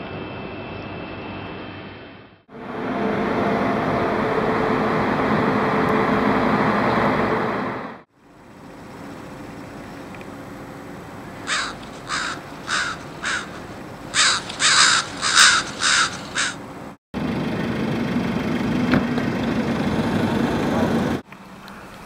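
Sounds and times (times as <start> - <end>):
steady background hum: 0.0 - 17.0
outdoor noise: 0.0 - 22.0
crow cawing: 11.5 - 16.6.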